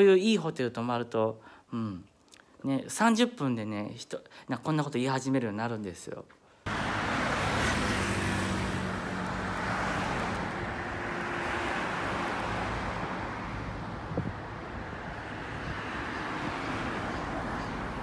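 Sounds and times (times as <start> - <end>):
passing cars: 6.7 - 18.0.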